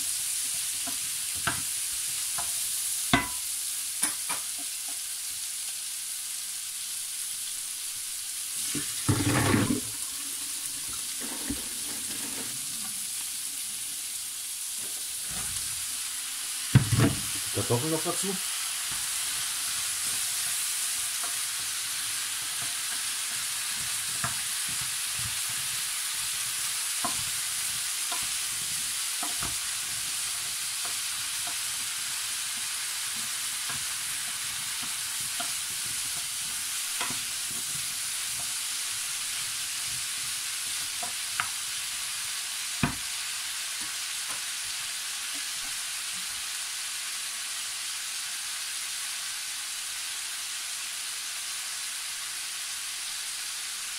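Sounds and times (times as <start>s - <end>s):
vegetables sizzling in pan: 0.0s - 53.9s
wooden spoon knocking pan: 3.2s - 3.4s, 16.8s - 17.4s, 29.2s - 29.8s.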